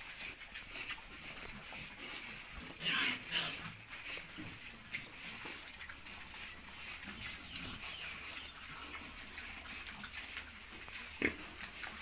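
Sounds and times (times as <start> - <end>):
pigs chewing feed: 0.0 - 12.0.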